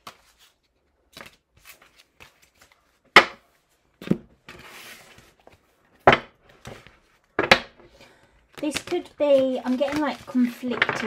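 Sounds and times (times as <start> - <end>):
cards rustling: 0.0 - 3.0, 6.5 - 11.0.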